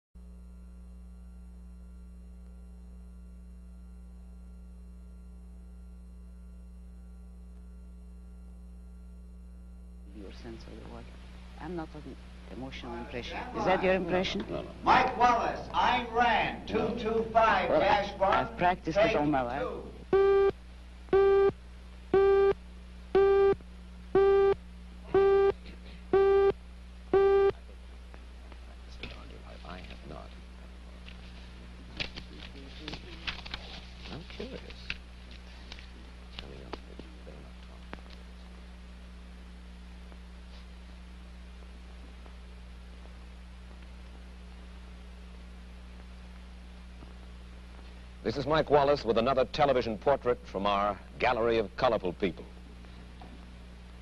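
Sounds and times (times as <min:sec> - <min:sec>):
low electrical hum: 0:00.2 - 0:54.0
higher hum: 0:05.2 - 0:48.4
buzzy electronic countdown beeps: 0:20.1 - 0:27.6.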